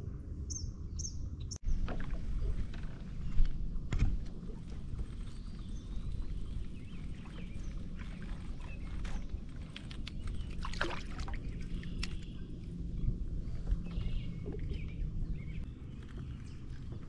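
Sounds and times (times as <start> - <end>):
steady low rumble: 0.0 - 17.0
fish splashing and thrashing: 4.3 - 12.4.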